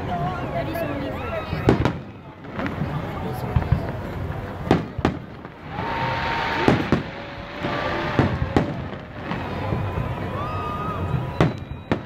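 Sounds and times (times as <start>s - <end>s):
firework crackle and rumble: 0.0s - 12.0s
firework shells bursting: 3.7s - 9.9s.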